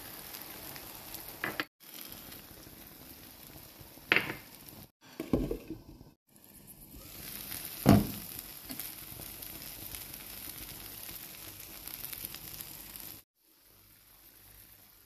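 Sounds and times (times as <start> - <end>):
food sizzling in a pan: 0.0 - 5.5, 6.3 - 15.0.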